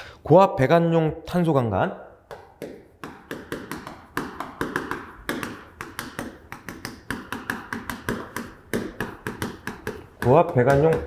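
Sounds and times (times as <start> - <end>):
chalk tapping on a chalkboard: 2.3 - 11.0.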